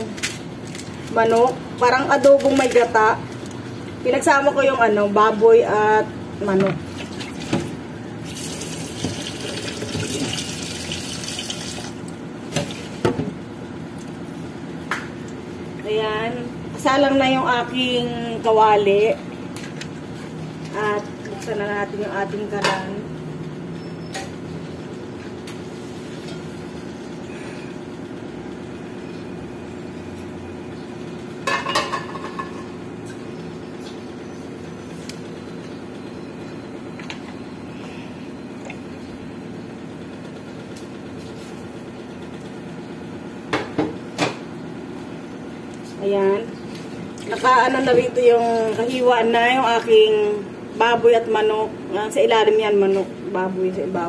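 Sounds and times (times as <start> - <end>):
water running from tap: 8.3 - 12.0
steady low hum: 11.6 - 54.0.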